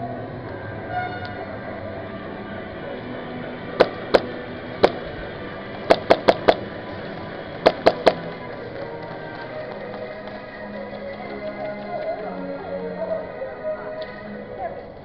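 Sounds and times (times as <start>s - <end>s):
background music: 0.0s - 15.0s.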